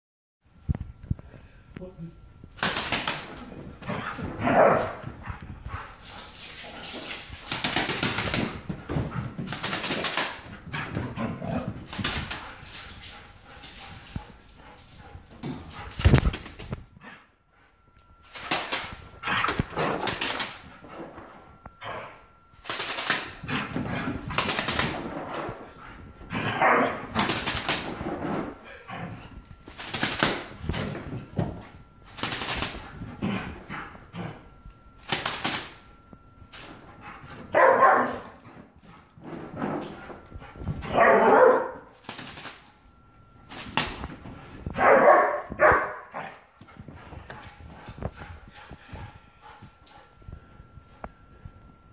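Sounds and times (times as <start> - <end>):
puppy barking: 4.4 - 5.0, 26.5 - 27.0, 37.6 - 38.3, 40.9 - 41.9, 44.8 - 46.3.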